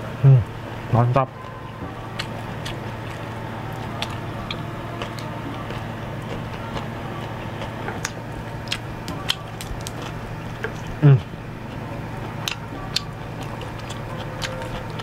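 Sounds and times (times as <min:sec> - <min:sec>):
steady low hum: 0:00.0 - 0:15.0
mouth chewing: 0:01.4 - 0:15.0.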